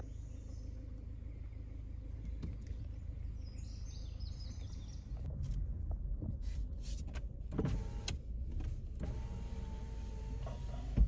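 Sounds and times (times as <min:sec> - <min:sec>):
birds chirping: 0:00.0 - 0:05.3
steady low rumble: 0:00.0 - 0:07.5.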